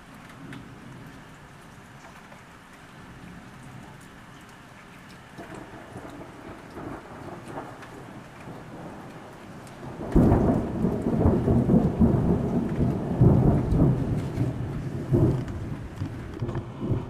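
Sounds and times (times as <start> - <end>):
rain falling: 0.0 - 17.0
thunder crack and rumble: 5.3 - 17.0.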